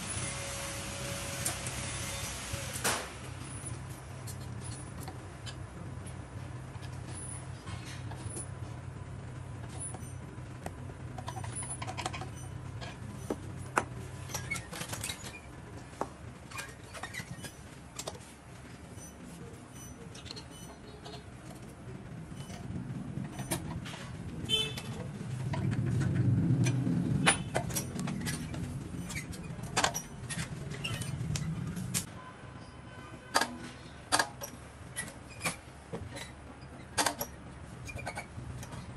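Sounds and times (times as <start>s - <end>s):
steady low hum: 0.0s - 32.2s.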